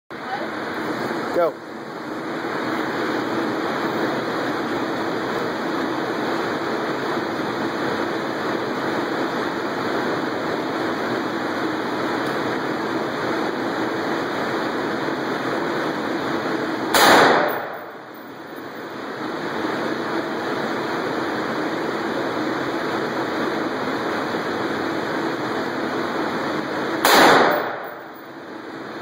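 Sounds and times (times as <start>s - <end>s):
steady rushing noise: 0.1s - 29.0s
rifle shot with ringing tail: 16.9s - 17.9s, 27.0s - 28.1s.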